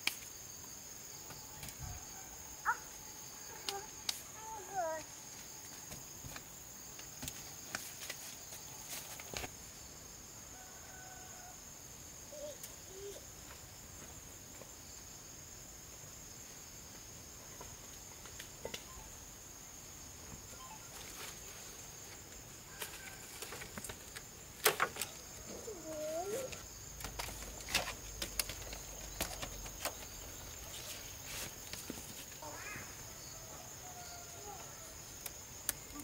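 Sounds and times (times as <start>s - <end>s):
faint bird chirps: 20.5s - 21.2s.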